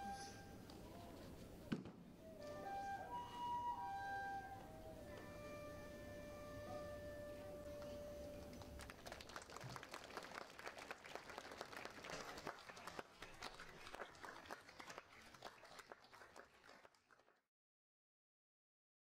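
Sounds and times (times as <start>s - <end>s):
audience applauding: 7.8s - 17.4s.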